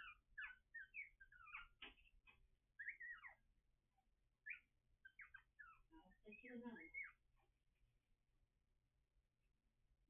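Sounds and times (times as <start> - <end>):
puppies squeaking: 0.0 - 3.5, 4.4 - 7.3.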